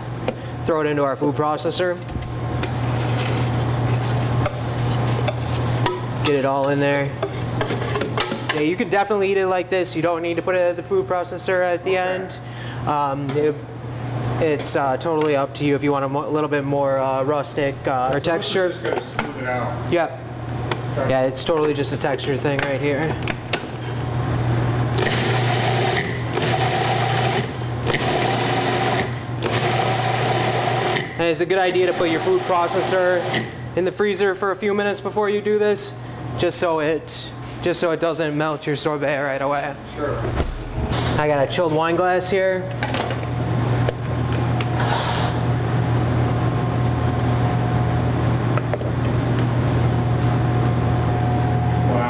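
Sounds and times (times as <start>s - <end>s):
low mechanical hum: 0.0s - 52.0s
food processor grinding ice: 25.0s - 31.1s, 31.8s - 33.4s.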